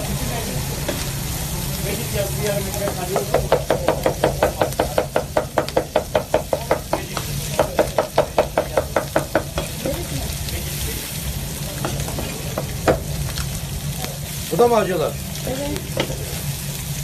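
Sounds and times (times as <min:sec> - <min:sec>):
cleaver chopping on wooden board: 0:02.8 - 0:09.7.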